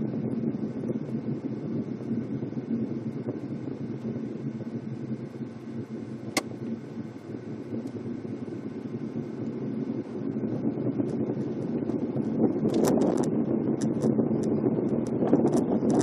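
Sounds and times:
car engine and tyre noise: 0.0s - 16.0s
sharp click: 6.3s - 6.6s.

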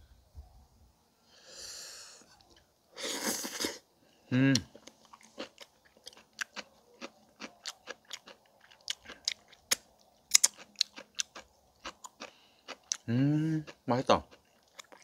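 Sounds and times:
chewing crunchy cabbage: 4.6s - 15.0s.

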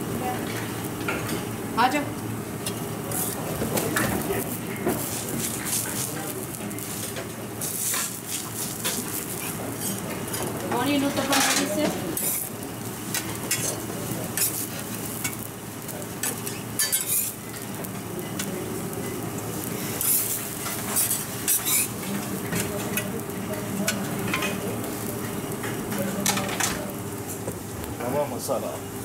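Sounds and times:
food sizzling: 0.0s - 29.0s
metal spatula scraping griddle: 9.8s - 10.5s, 16.2s - 17.4s, 19.8s - 22.8s
spatula clinking on steel plate: 16.2s - 17.3s.

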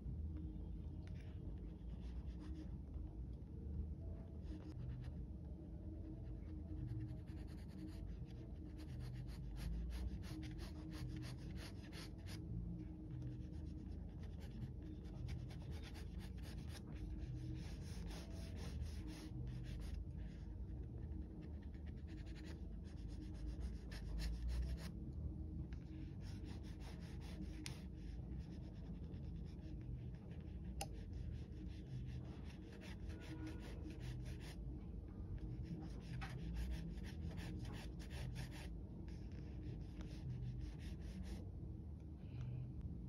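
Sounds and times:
pencil scratching on paper: 6.7s - 12.4s, 13.2s - 20.4s, 21.0s - 24.9s, 26.1s - 34.6s, 35.4s - 41.4s.

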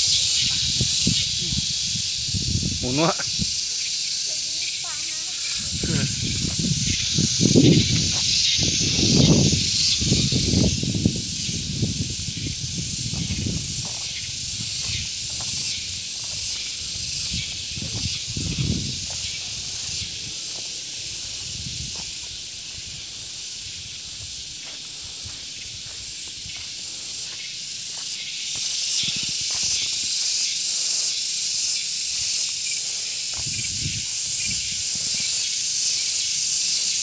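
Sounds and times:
steady high hiss: 0.0s - 37.0s
low rumbling gusts: 0.4s - 3.6s, 5.6s - 16.2s, 16.8s - 20.4s.

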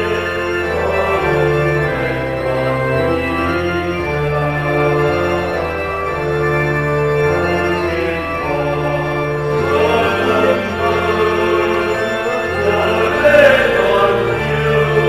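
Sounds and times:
organ playing hymn chords: 0.0s - 15.0s.

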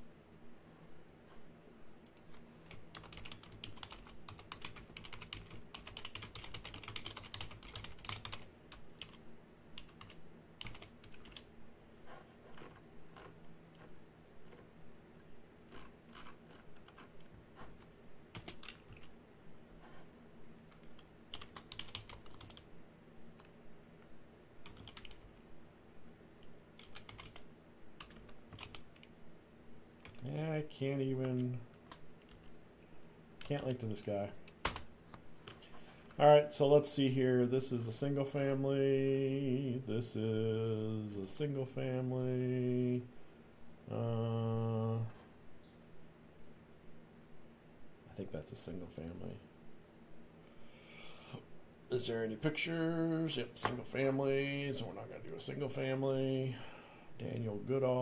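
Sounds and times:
typing on a computer keyboard: 2.1s - 9.2s, 9.8s - 11.5s, 18.3s - 19.1s, 20.7s - 22.7s, 24.6s - 25.3s, 26.8s - 27.4s, 28.0s - 29.1s.

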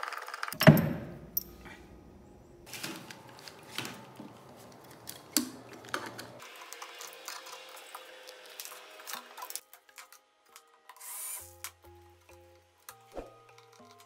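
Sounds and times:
small hard parts clicking: 12.8s - 14.0s.

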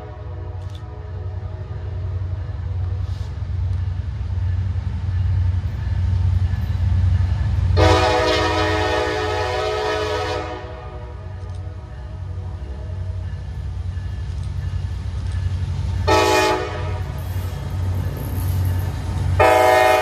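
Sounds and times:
diesel locomotive rumbling: 0.0s - 20.0s
locomotive air horn blast: 7.8s - 11.4s, 16.1s - 17.2s, 19.4s - 20.0s.

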